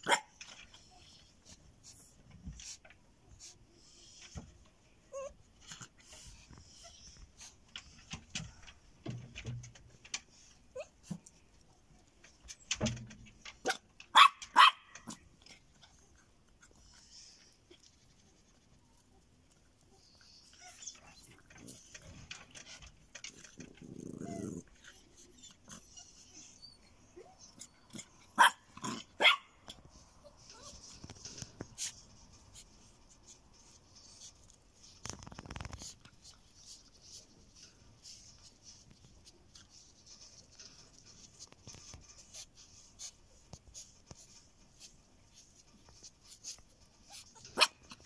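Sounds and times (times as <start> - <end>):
dogs barking sharply: 0.0 - 0.5, 13.6 - 15.3, 27.9 - 29.8
dog growling low: 23.6 - 24.9.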